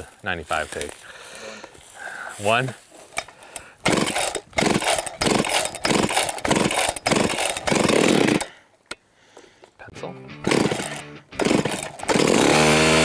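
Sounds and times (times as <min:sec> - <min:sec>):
chainsaw revving: 0:03.8 - 0:08.5, 0:10.4 - 0:13.0.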